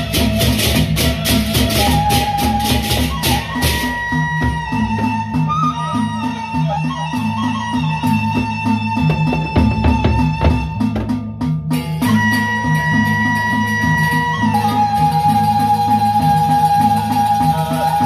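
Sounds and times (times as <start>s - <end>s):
barrel drums beating: 8.4s - 12.3s.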